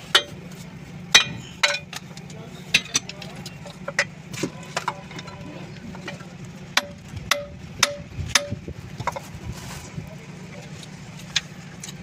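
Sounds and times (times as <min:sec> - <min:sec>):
metal tool tapping steel: 0:00.0 - 0:00.4, 0:01.1 - 0:02.0, 0:06.8 - 0:09.2
steady low hum: 0:00.0 - 0:12.0.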